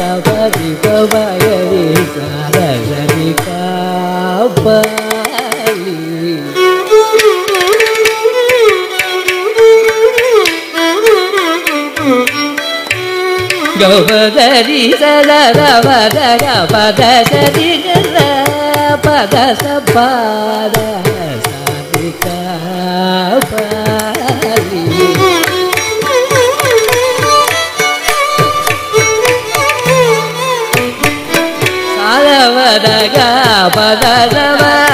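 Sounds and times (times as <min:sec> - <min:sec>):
hand-drum strokes: 0:23.4 - 0:32.2
ornamented melody line: 0:24.7 - 0:34.9.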